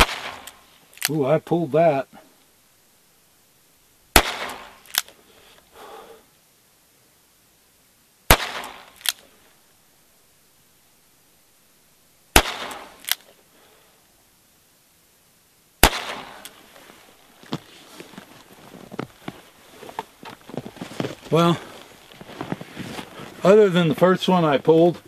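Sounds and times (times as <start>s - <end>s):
revolver gunshots: 0.0s - 0.6s, 4.1s - 5.1s, 8.3s - 9.2s, 12.3s - 13.2s, 15.8s - 16.6s
sharp click: 12.6s - 13.3s.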